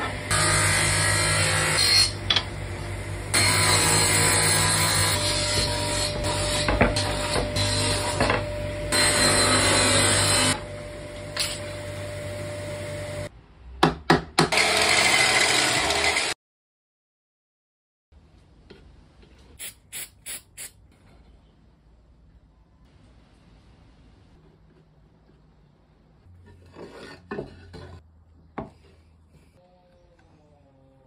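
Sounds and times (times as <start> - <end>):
table saw cutting wood: 0.0 - 13.3, 14.4 - 16.4
mitre saw starting: 14.5 - 16.4.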